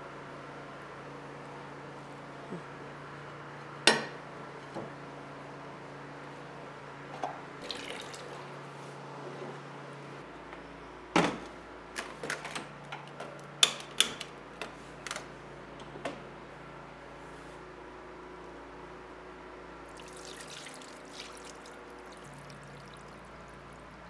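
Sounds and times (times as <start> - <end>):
water splashing in sink: 7.6 - 8.4, 19.9 - 24.0.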